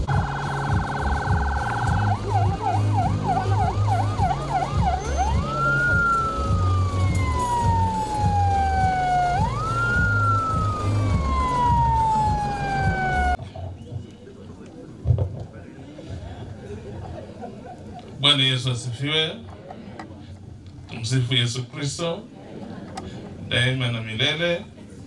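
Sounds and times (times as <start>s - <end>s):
electronic siren: 0.0s - 13.4s.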